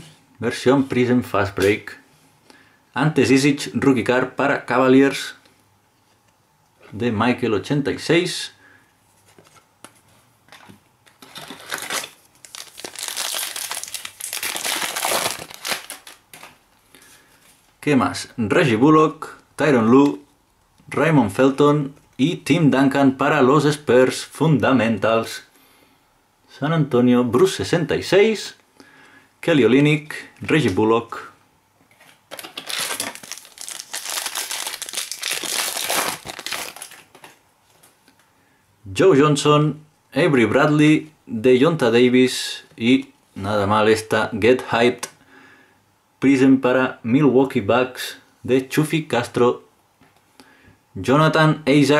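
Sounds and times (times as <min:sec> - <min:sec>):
foil wrapper crinkling: 0:11.1 - 0:16.6, 0:32.0 - 0:37.4.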